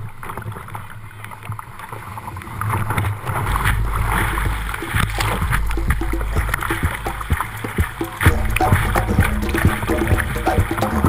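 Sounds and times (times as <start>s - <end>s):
deep rumble of pounding water: 2.6s - 11.0s
whitewater rushing: 3.3s - 11.0s.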